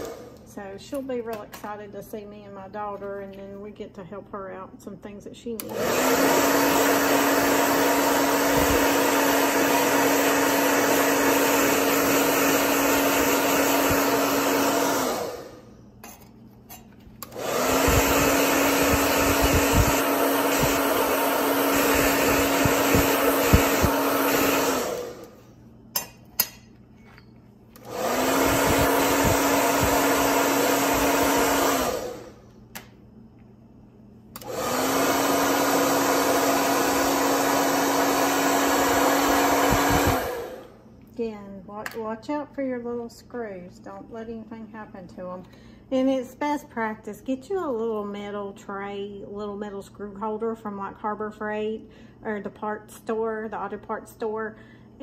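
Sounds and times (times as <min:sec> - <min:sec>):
hair dryer running: 0:00.0 - 0:01.9, 0:05.5 - 0:15.9, 0:17.2 - 0:25.6, 0:27.7 - 0:33.0, 0:34.2 - 0:41.0.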